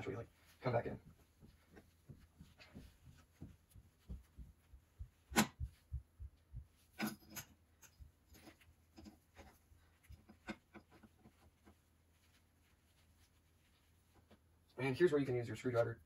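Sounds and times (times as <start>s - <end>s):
metal burner tube knocks and clicks: 5.1s - 5.9s, 10.1s - 11.3s.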